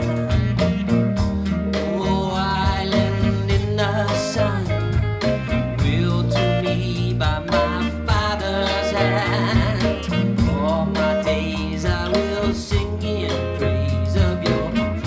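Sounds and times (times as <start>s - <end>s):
bass guitar: 0.0s - 15.0s
drums: 0.0s - 15.0s
electric guitar: 0.0s - 15.0s
woman singing lead: 5.8s - 15.0s.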